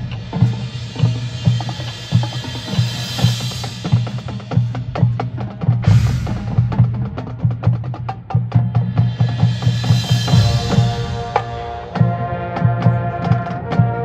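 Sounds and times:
marching drums playing: 0:00.0 - 0:14.0
cymbal crash: 0:09.1 - 0:12.0.

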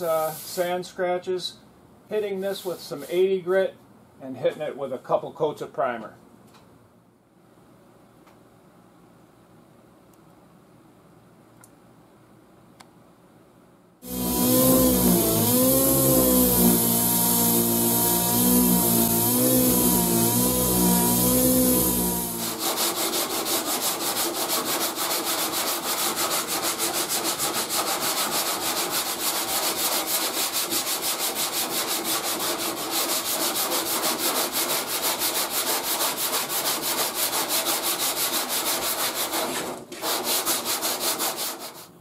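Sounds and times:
electric sander running: 0:14.0 - 0:22.8
hand sanding strokes on metal: 0:14.0 - 0:42.0.

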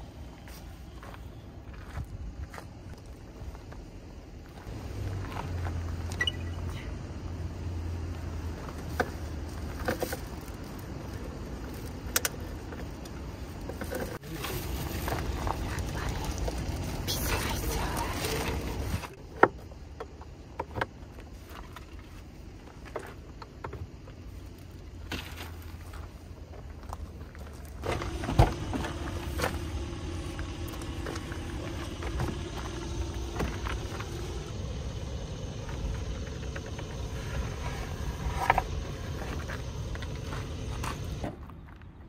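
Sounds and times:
vehicles idling rumble: 0:04.5 - 0:20.3, 0:21.1 - 0:41.3
steady hum: 0:23.9 - 0:41.3.

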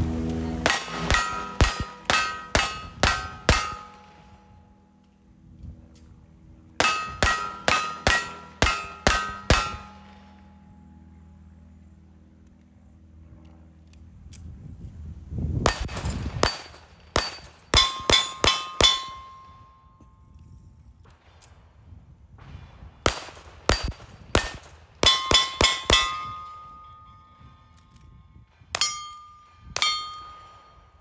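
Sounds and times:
steel target clanging: 0:00.3 - 0:04.6, 0:06.8 - 0:10.6, 0:15.7 - 0:19.6, 0:23.7 - 0:27.4, 0:28.8 - 0:31.0
gunshots: 0:00.6 - 0:04.3, 0:23.0 - 0:26.1.

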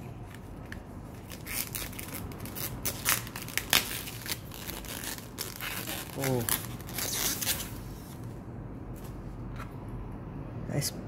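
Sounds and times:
packaging crinkling and rustling: 0:00.2 - 0:08.2.

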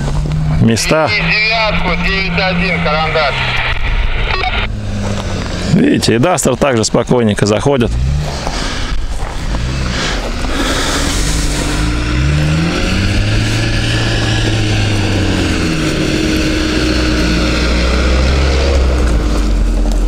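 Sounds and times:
car engine running: 0:00.0 - 0:20.0.

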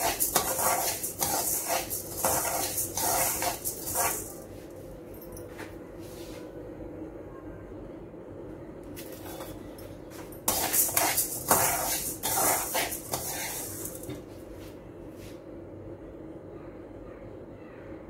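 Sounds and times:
metal spoon scraping dry lentils: 0:00.0 - 0:04.4, 0:10.5 - 0:14.1.

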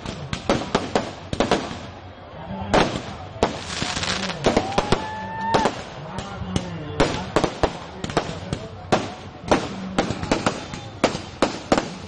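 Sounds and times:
fire crackling: 0:00.0 - 0:06.4
firecrackers banging: 0:00.0 - 0:12.0.

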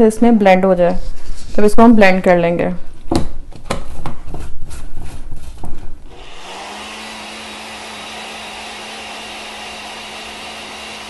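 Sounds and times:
blender motor whirring: 0:06.1 - 0:11.0.

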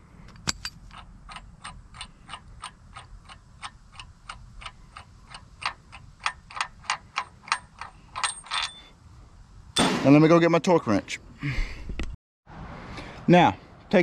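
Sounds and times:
socket ratchet clicking: 0:00.3 - 0:08.8.

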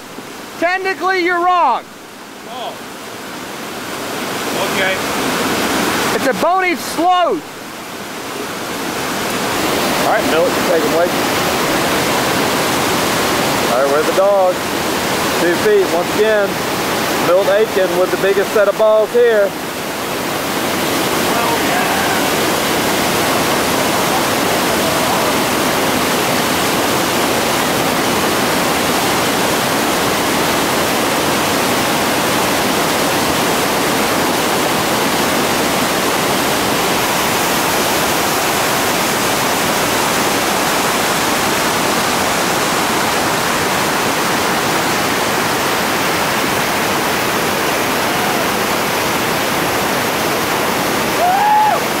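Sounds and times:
whitewater rushing: 0:00.0 - 0:52.0.

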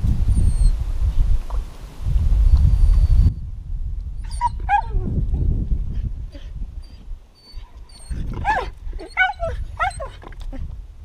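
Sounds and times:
dog whining: 0:04.2 - 0:05.1, 0:06.3 - 0:10.5
dog yelping: 0:04.2 - 0:05.1, 0:06.3 - 0:10.2.

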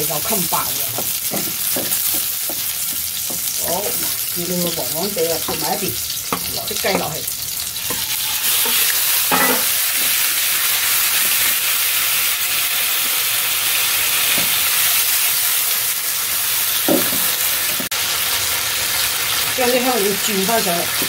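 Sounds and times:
chicken sizzling in a wok: 0:00.0 - 0:21.0
spatula knocking against wok: 0:00.9 - 0:04.2.

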